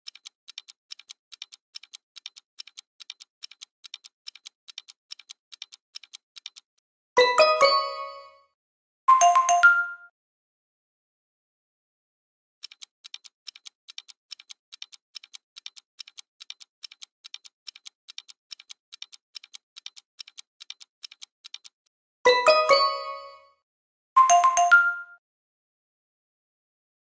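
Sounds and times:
clock-like ticking: 0.0 - 6.8, 12.6 - 23.4
bright multi-note chime: 7.2 - 8.4, 9.1 - 10.1, 22.3 - 23.5, 24.2 - 25.2.

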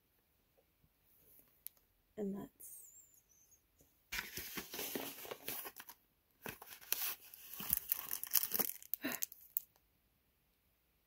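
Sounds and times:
tissue paper crinkling: 4.2 - 9.6.

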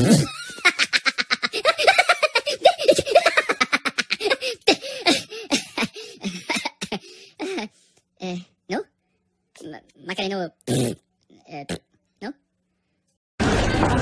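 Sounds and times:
cartoon characters giggling: 0.1 - 7.7.

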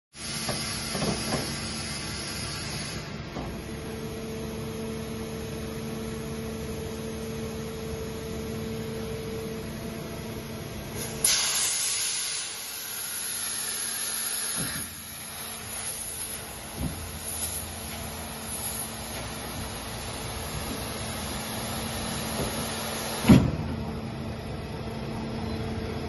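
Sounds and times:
machinery hum: 0.2 - 26.0
sudden loud hiss: 11.0 - 19.1.

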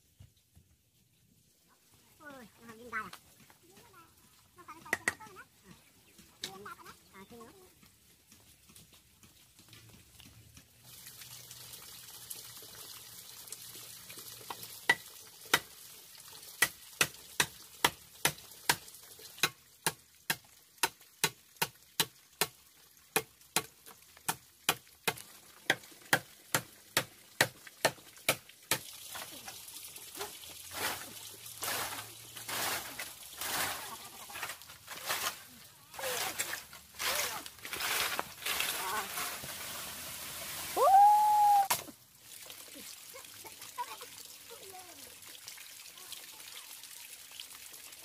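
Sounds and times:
rustling and scraping: 30.2 - 40.0.

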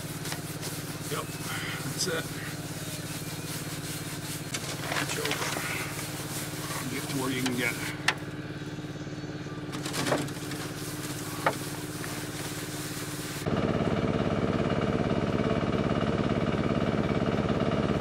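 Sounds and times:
engine running steadily: 0.0 - 18.0.

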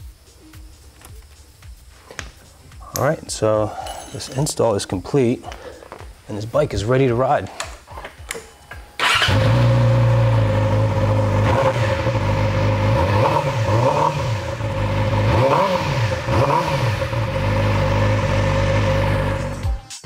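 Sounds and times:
motorcycle engine revving: 9.0 - 19.6.

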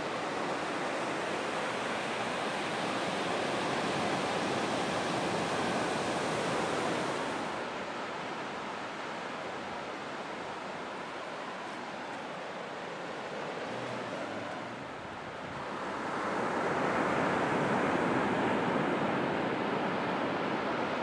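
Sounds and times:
ocean waves breaking on beach: 0.0 - 21.0.

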